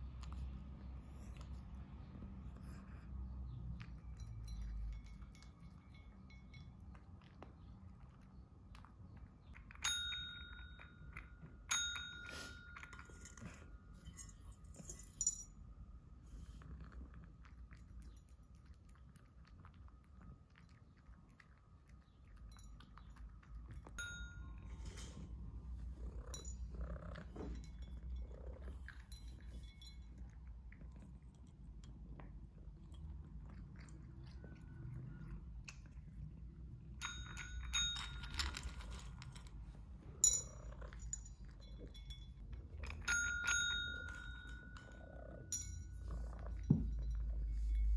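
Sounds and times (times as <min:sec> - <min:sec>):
clinks against ceramic bowl: 0:03.8 - 0:07.7, 0:09.4 - 0:15.6, 0:22.4 - 0:25.0, 0:40.2 - 0:47.9
cat crunching food: 0:16.3 - 0:24.6, 0:25.4 - 0:46.6.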